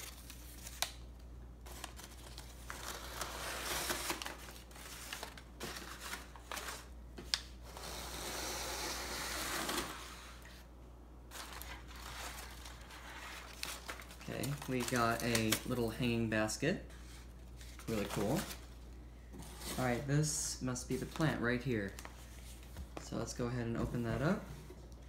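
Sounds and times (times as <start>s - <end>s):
sharp paper crackles: 0.0s - 6.9s, 11.3s - 16.0s
newspaper rustling and crinkling: 0.0s - 7.7s, 11.3s - 16.3s, 17.0s - 18.8s, 20.8s - 24.4s.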